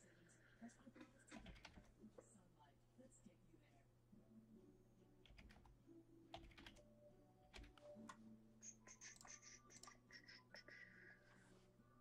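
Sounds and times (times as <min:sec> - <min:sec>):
faint keyboard typing: 0:00.9 - 0:02.1, 0:05.2 - 0:11.2.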